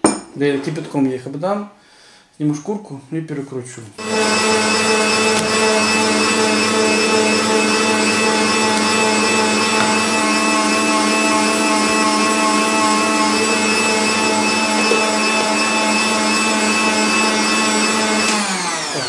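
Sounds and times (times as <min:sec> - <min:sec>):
meat grinder motor running: 0:04.0 - 0:19.0.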